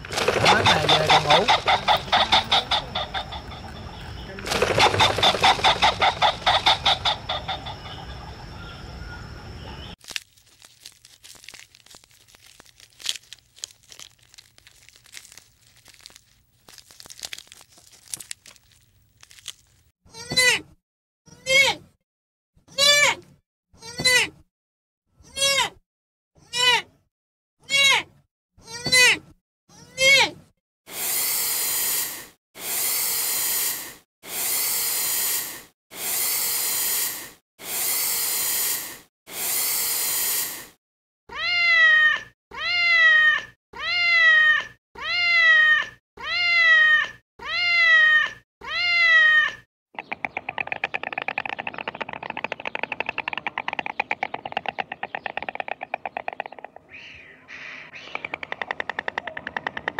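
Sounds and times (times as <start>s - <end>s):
fast rattling clatter: 0.0s - 2.5s, 4.4s - 6.8s, 50.0s - 56.5s
long even hisses: 30.9s - 40.8s
cat meowing: 41.3s - 49.6s.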